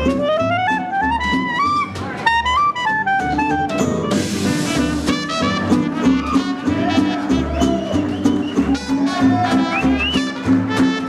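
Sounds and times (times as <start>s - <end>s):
clarinet: 0.0s - 11.0s
trumpet: 0.0s - 11.0s
upright bass: 0.0s - 11.0s
drum kit: 3.6s - 11.0s.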